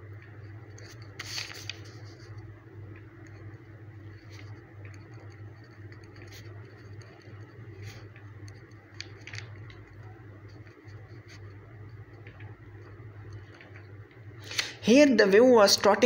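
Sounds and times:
steady low hum: 0.0 - 16.0
pen scratching on paper: 4.1 - 12.2.

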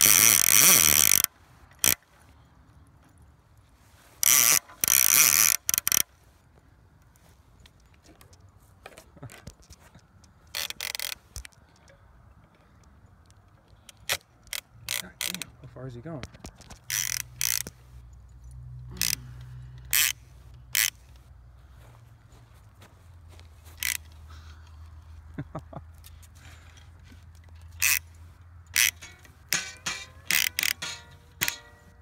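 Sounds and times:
fishing reel ratcheting: 0.0 - 2.0, 4.2 - 6.1, 10.5 - 11.6, 13.9 - 15.5, 16.6 - 17.8, 18.9 - 21.2, 23.8 - 24.2, 27.5 - 32.0.

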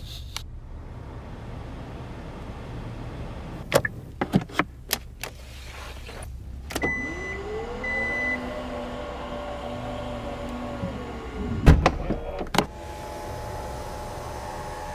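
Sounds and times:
power liftback motor whirring: 6.7 - 11.8, 12.6 - 14.9.

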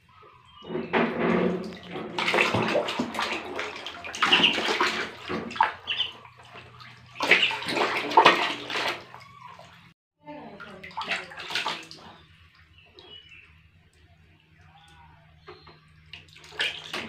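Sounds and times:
water splashing in a tub: 0.0 - 17.0.

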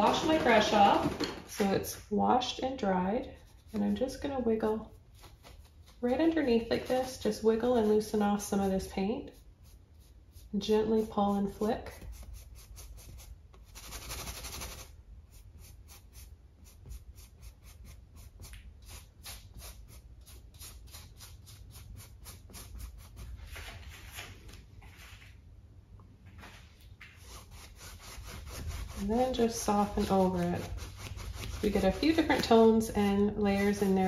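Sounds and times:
paintbrush scratching on canvas: 2.5 - 23.7, 27.2 - 34.0
brush swishes: 2.8 - 25.3, 26.4 - 34.0.

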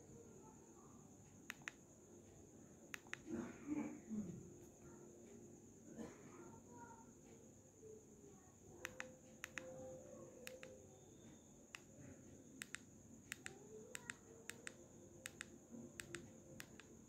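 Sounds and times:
faint high-pitched whine: 0.0 - 17.0
phone buttons clicking: 1.5 - 1.8, 3.0 - 3.2, 8.8 - 9.8, 10.4 - 10.8, 12.6 - 16.9.

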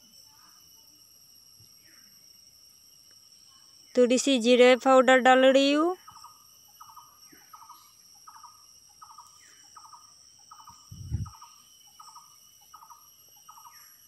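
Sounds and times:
bird chirping: 6.0 - 14.0.

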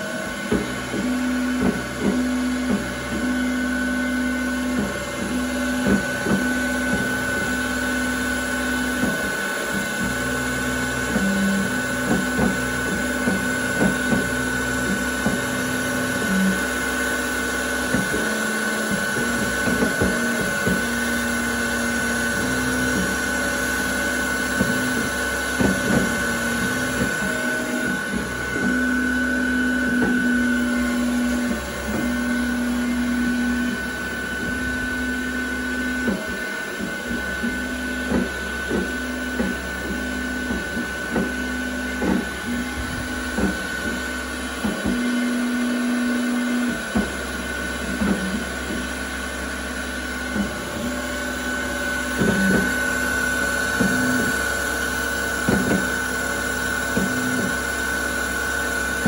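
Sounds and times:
spindle high whine: 0.0 - 59.0
stepper motors humming: 0.0 - 59.0.

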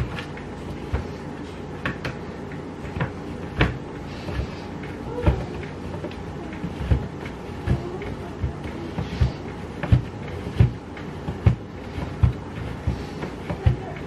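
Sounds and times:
grater knocking on wooden board: 5.2 - 14.0.

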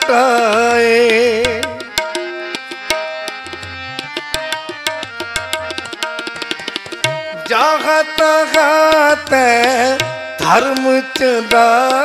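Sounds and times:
person singing: 0.0 - 1.9, 7.3 - 12.0
harmonium held notes: 0.0 - 12.0
tabla playing quick rhythm: 0.0 - 12.0.

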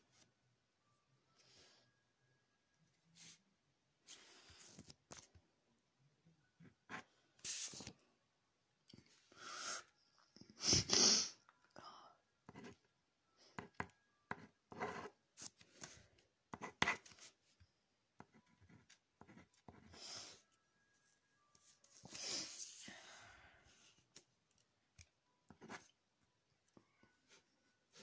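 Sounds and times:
pencil scratching on paper: 13.6 - 17.4, 18.2 - 20.0, 25.5 - 26.0.

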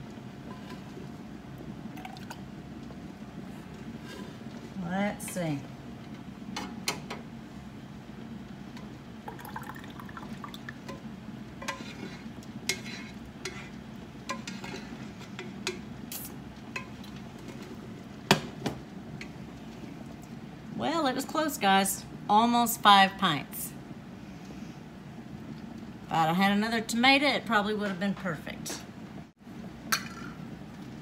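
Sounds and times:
wooden spoon scraping metal pot: 11.6 - 15.6.

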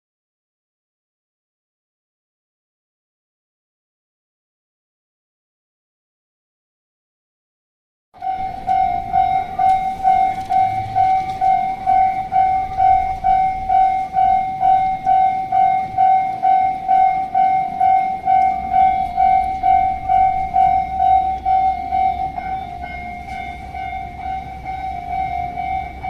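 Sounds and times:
level crossing warning bell: 8.2 - 26.0.

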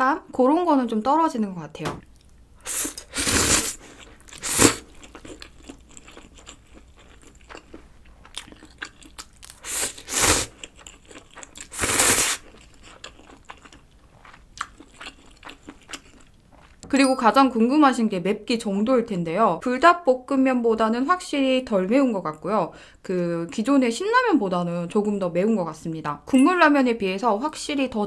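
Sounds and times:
person slurping noodles: 2.6 - 5.0, 9.6 - 10.6, 11.6 - 12.5
chewing and mouth clicks: 3.9 - 16.8.

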